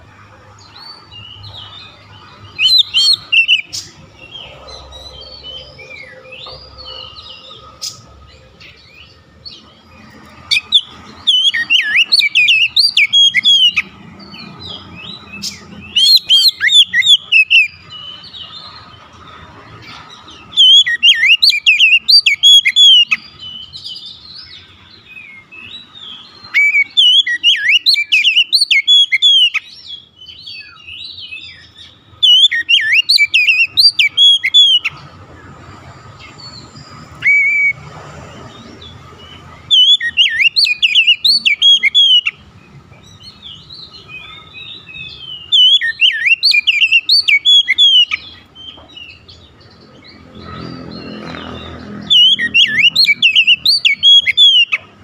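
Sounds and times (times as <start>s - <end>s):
bird singing whistled phrases: 2.6s - 4.4s, 10.5s - 13.8s, 15.9s - 18.1s, 20.5s - 24.1s, 26.0s - 34.9s, 36.8s - 37.8s, 39.7s - 42.4s, 43.4s - 49.2s, 52.0s - 54.9s.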